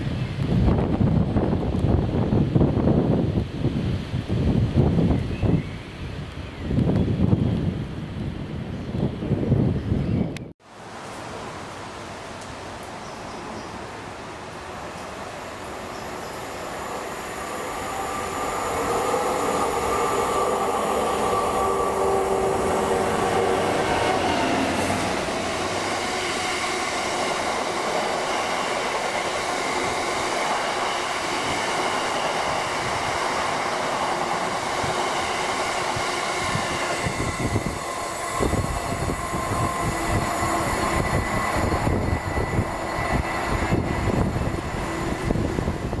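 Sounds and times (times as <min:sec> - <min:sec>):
diesel locomotive engine: 0:13.7 - 0:46.0.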